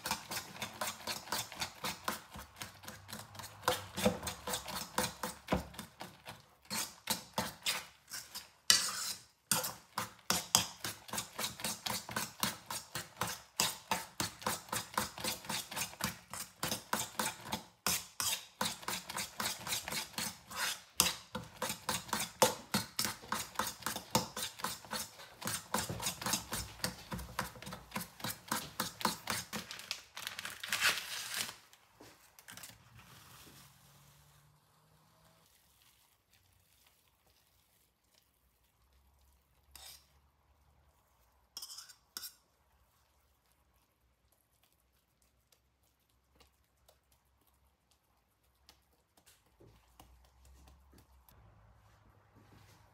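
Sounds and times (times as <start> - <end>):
hand squelching minced meat: 31.8 - 41.6, 42.5 - 52.9.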